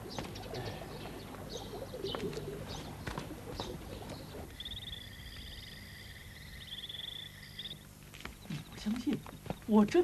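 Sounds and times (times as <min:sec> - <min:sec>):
dove cooing: 0:00.0 - 0:05.0
birds chirping: 0:00.0 - 0:10.0
insects trilling: 0:00.0 - 0:10.0.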